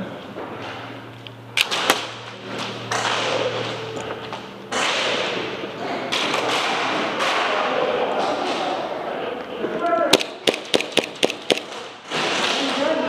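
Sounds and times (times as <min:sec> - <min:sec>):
sharp snaps: 0:10.1 - 0:11.8.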